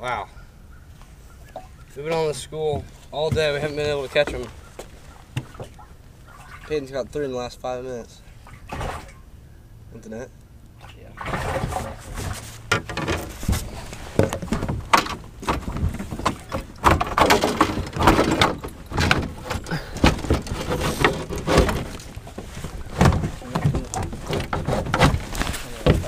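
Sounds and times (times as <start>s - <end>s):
knocks and clattering in a boat: 1.5s - 6.7s, 11.2s - 26.0s
clothing rubbing: 20.4s - 26.0s.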